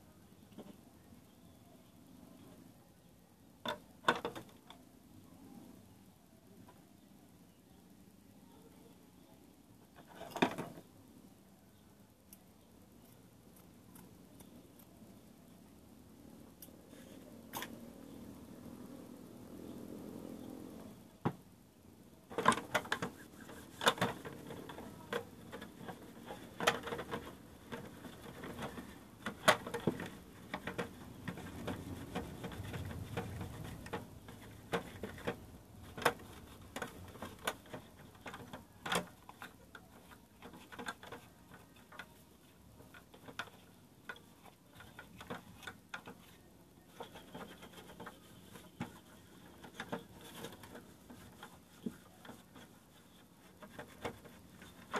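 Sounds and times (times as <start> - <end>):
hard plastic parts clicking and knocking: 3.6 - 4.8, 10.0 - 10.9, 22.3 - 54.9.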